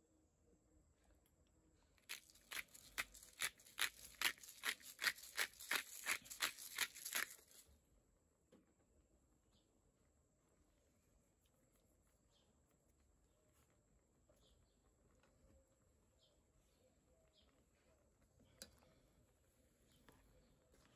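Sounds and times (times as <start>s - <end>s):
pepper grinder rasping: 2.1s - 7.6s.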